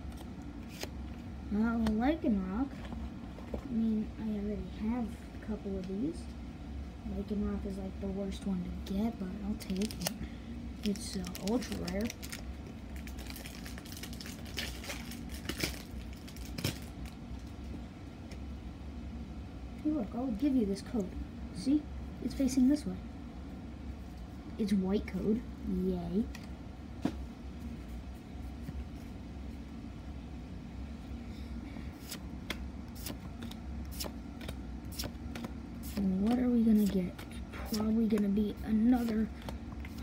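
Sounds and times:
low machine hum: 0:00.0 - 0:40.0
trading cards being flipped: 0:00.1 - 0:01.0, 0:32.0 - 0:38.3
cards and foil wrappers crinkling: 0:09.6 - 0:10.2, 0:10.8 - 0:17.2.

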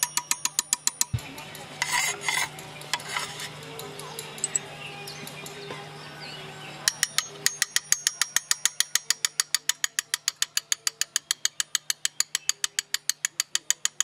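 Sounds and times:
chisel tapping stone: 0:00.0 - 0:03.6, 0:04.3 - 0:04.6, 0:06.9 - 0:14.0.

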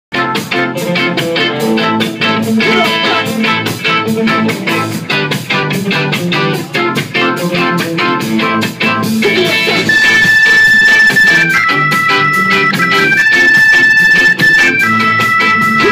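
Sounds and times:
bass guitar: 0:00.1 - 0:15.9
drum kit: 0:00.1 - 0:15.9
electric guitar: 0:00.1 - 0:15.9
held keyboard-like tones: 0:09.8 - 0:15.9.

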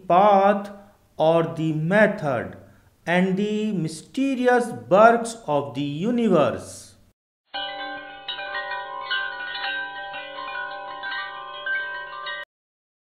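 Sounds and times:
chime-like ringing notes: 0:07.5 - 0:12.5.

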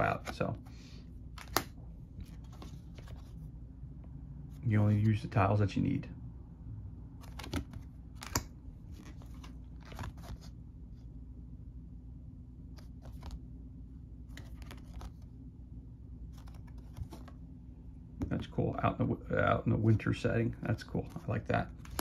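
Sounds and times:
low room hum: 0:00.0 - 0:22.0
card tiles scraping and flapping: 0:01.4 - 0:03.4, 0:14.3 - 0:15.3, 0:16.3 - 0:17.4, 0:20.8 - 0:22.0.

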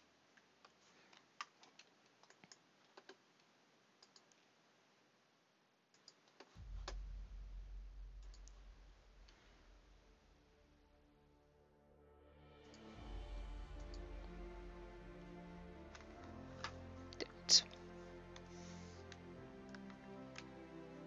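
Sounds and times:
computer keyboard clicks: 0:01.4 - 0:03.2, 0:04.0 - 0:04.4
low rumble: 0:06.6 - 0:18.3.

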